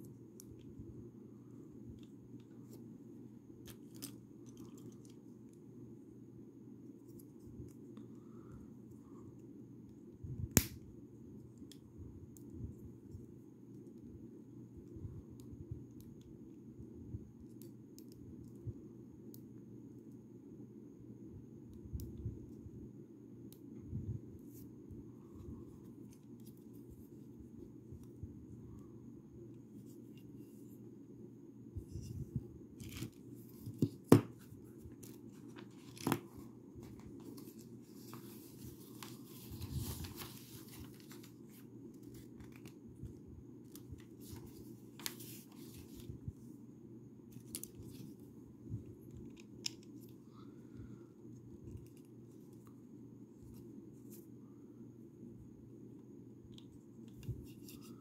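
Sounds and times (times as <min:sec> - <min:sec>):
rustling: 0:31.8 - 0:42.8.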